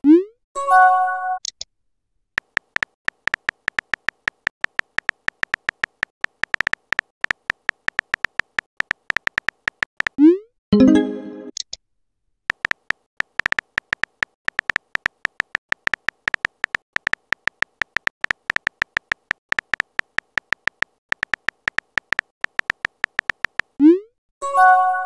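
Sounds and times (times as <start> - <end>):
keyboard typing clicks: 2.4 - 10.2, 12.5 - 23.8.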